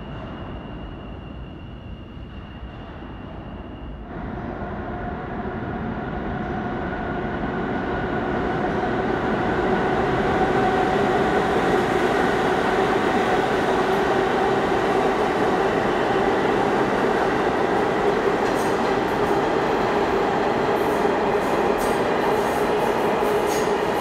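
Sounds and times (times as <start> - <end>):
subway train passing at speed: 0.0 - 24.0.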